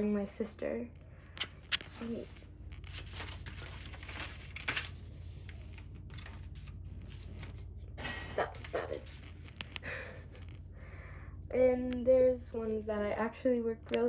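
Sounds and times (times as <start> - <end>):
steady low hum: 0.0 - 14.0
paper rustling and crackling: 1.4 - 10.6.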